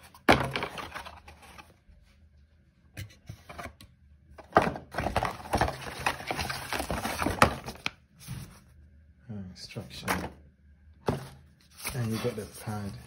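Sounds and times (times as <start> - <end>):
packaging crinkling: 5.0 - 7.9.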